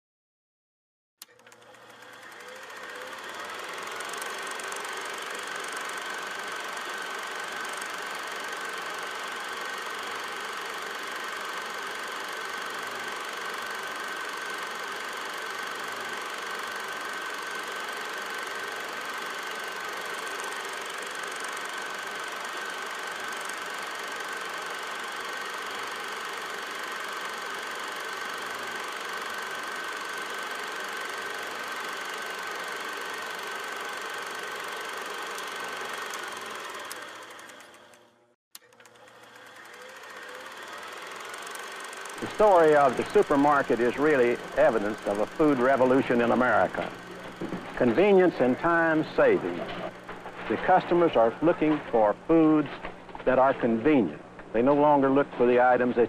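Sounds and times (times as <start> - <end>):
constant high whine: 38.6 - 56.0.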